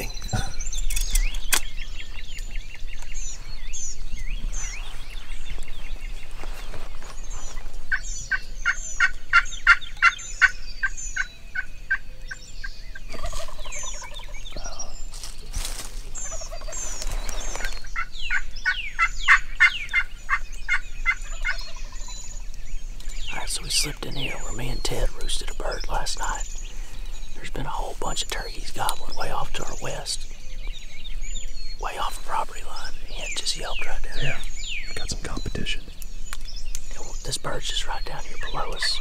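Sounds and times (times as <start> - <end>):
songbirds chirping: 0.0 - 39.0
turkey gobbling: 13.1 - 14.3, 16.2 - 16.8.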